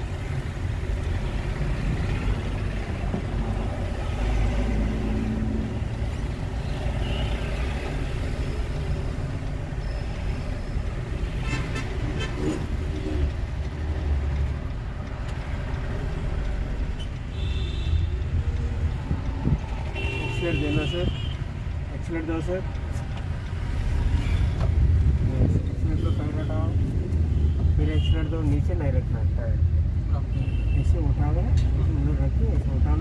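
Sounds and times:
car engine and road rumble: 0.0 - 33.0
car horn toot: 19.9 - 21.3.

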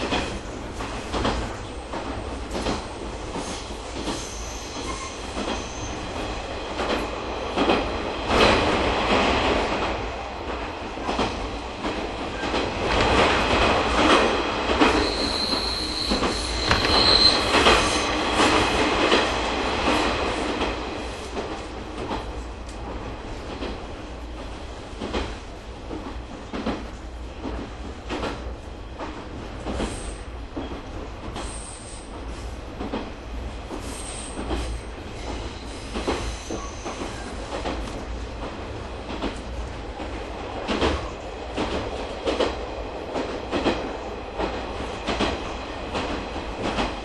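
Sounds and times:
train rumble: 0.0 - 47.0
rail-joint clicks: 11.0 - 22.9.

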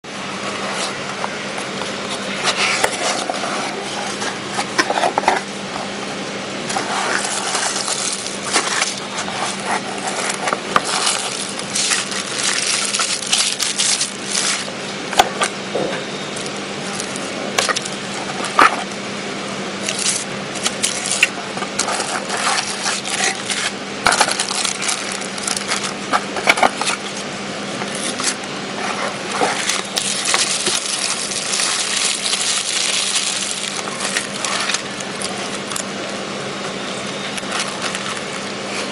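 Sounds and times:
cardboard scraping: 0.3 - 6.0, 6.6 - 14.8, 19.9 - 27.2, 27.8 - 36.0
bubble wrap crinkling: 6.6 - 14.8, 16.4 - 18.9, 19.8 - 36.0, 37.2 - 38.9.

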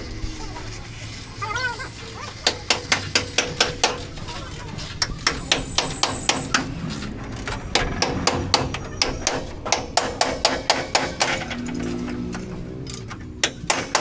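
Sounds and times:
rapid hammering on sheet metal: 2.4 - 6.8, 7.7 - 11.9, 13.4 - 14.0.

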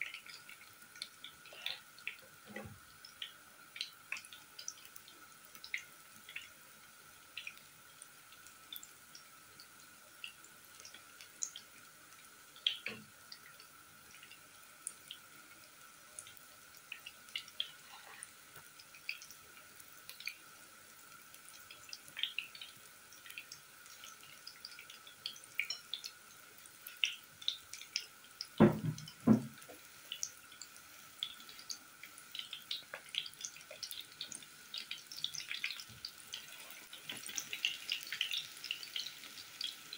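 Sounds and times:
oil popping and crackling: 16.2 - 39.9
loud knocks: 28.6 - 29.6.

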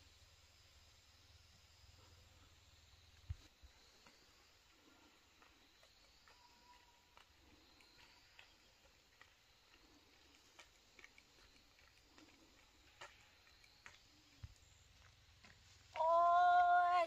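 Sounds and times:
faint light ticks: 5.4 - 16.1
drawn-out voice call: 16.0 - 17.0.

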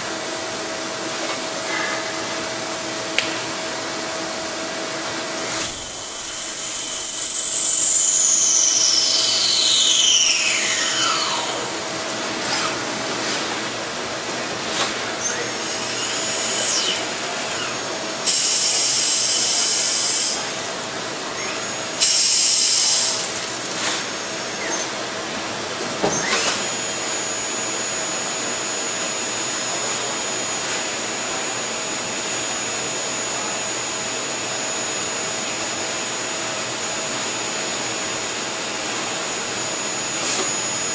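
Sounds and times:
lathe machine hum: 2.3 - 40.9
whine rising to steady high tone: 3.8 - 12.3
high whines falling in pitch: 5.4 - 12.9, 26.2 - 36.2.

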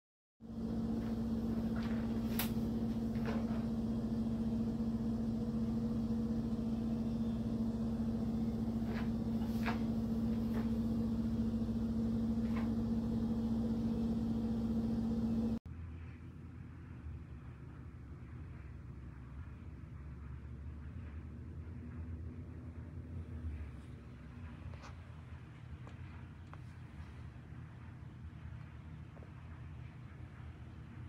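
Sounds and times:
kitchen appliance humming: 0.4 - 15.6.

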